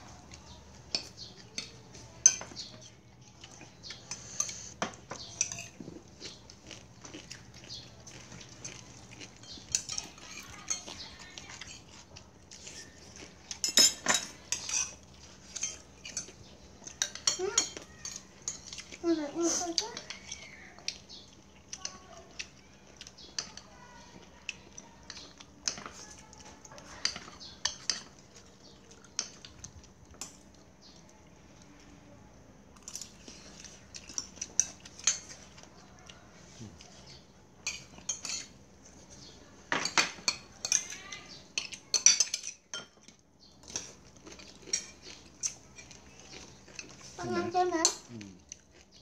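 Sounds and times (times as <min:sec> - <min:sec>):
spoons clinking on ceramic bowls: 0:00.9 - 0:02.8, 0:04.1 - 0:05.8, 0:12.6 - 0:18.8, 0:37.6 - 0:38.5, 0:39.7 - 0:43.9.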